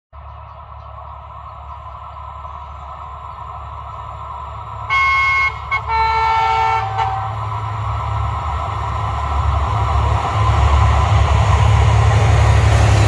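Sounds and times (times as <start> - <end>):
train rumble: 0.2 - 13.0
locomotive horn: 4.9 - 7.5.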